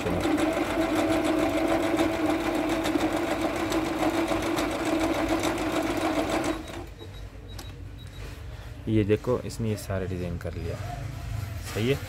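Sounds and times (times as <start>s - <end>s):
sewing machine stitching: 0.0s - 6.9s.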